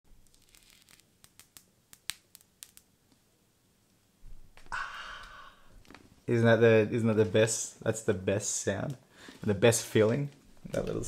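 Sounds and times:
plastic film peeling crackle: 0.2s - 2.9s, 5.8s - 6.1s, 10.0s - 11.0s.

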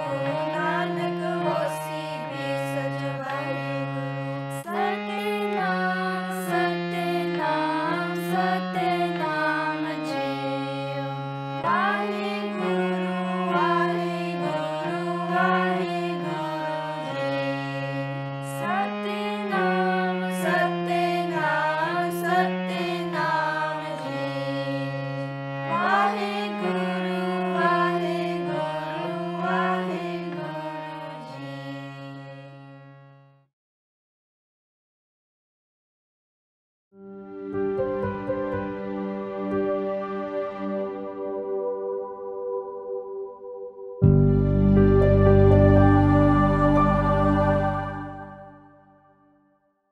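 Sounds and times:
melody with sliding notes: 37.0s - 49.2s
held low notes: 44.0s - 48.7s.

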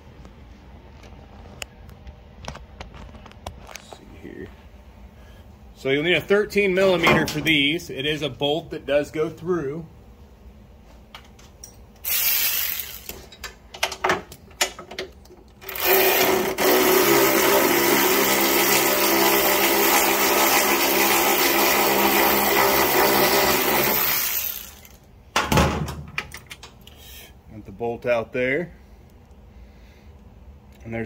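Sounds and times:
cordless power driver whirring: 12.0s - 13.2s, 15.6s - 20.3s, 21.2s - 25.0s.

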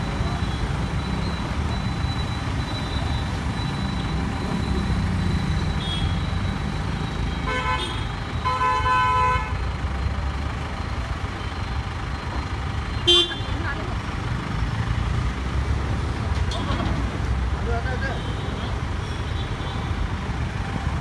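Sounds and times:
street traffic rumble: 0.0s - 21.0s
vehicle horn honking: 7.4s - 9.6s, 13.0s - 13.5s.

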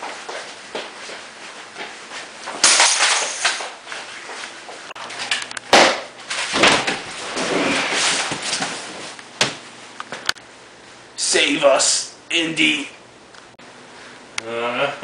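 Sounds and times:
toy gun bangs: 2.6s - 3.6s.

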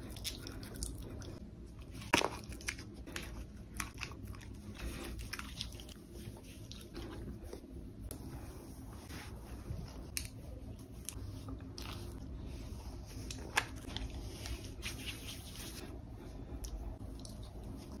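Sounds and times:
rustling against a towel: 4.7s - 16.4s.

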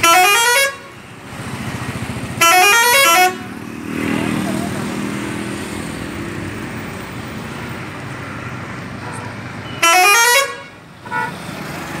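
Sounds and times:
coach horn blast: 0.0s - 0.9s, 2.4s - 3.5s, 9.0s - 11.4s
street noise: 0.0s - 12.0s.

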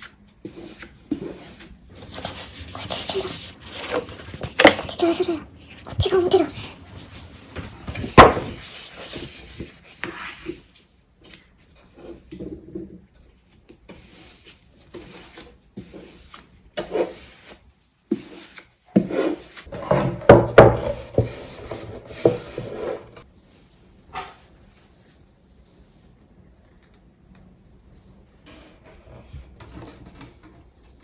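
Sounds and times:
paper rustling against wood: 0.0s - 11.4s.

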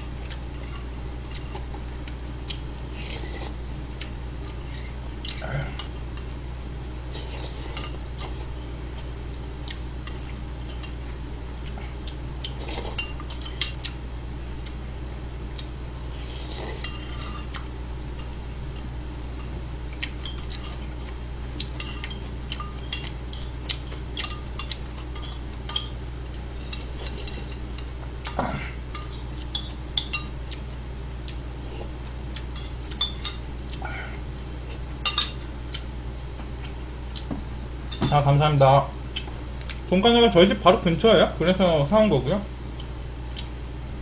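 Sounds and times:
steady low hum: 0.0s - 44.0s
spoon clinking against ceramic bowl: 21.7s - 23.4s, 24.2s - 25.9s, 28.9s - 30.4s, 32.6s - 33.4s, 35.0s - 35.4s.

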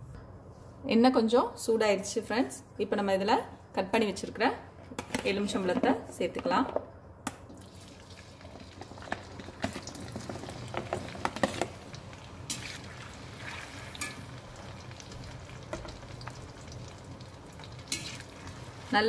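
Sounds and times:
lemon sizzling in hot oil: 7.6s - 19.0s.

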